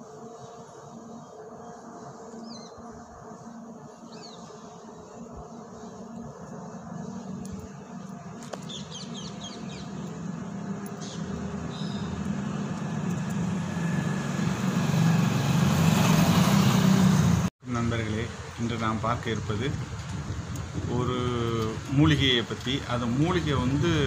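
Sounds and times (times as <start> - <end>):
bird chirping: 1.1 - 2.9, 4.0 - 4.6, 8.5 - 10.2, 10.9 - 12.4
vehicle engine approaching: 8.9 - 17.5.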